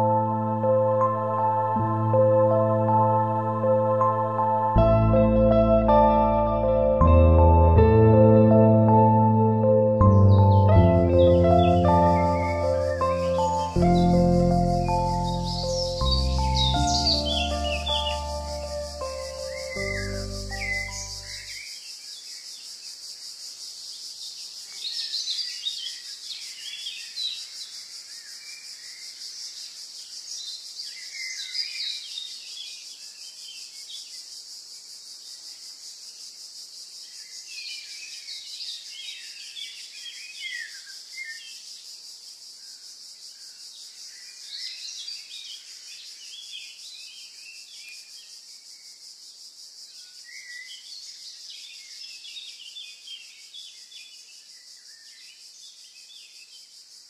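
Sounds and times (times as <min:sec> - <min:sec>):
birds chirping and twittering: 0:10.0 - 0:36.3, 0:37.0 - 0:42.0
steady high-pitched hiss: 0:11.0 - 0:57.0.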